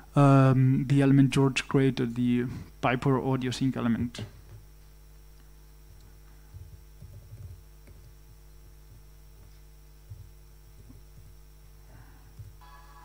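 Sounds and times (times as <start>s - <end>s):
mains hum: 0.0s - 13.0s
laptop keyboard typing: 6.5s - 9.0s.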